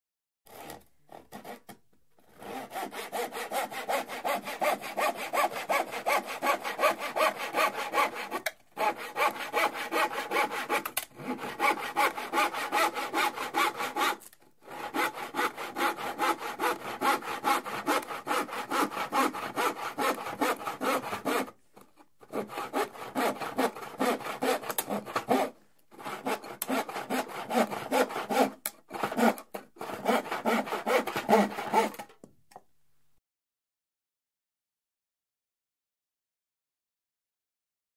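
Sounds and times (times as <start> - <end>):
hand saw cutting plywood: 0.5 - 32.2.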